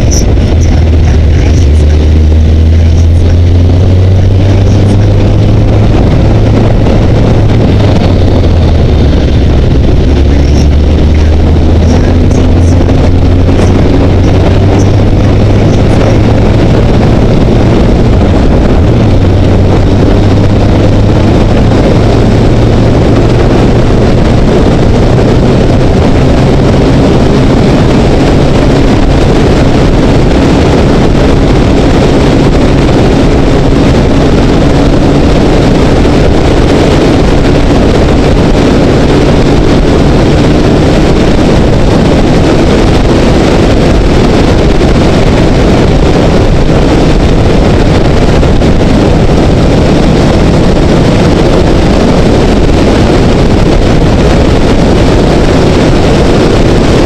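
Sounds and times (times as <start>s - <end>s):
loud wind rush: 0.0s - 57.0s
motorcycle engine accelerating: 0.0s - 57.0s.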